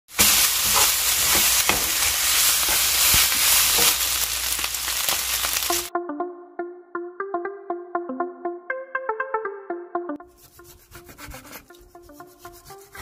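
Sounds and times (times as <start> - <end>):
meat sizzling in a frying pan: 0.1 - 5.9
light keyboard music: 5.9 - 13.0.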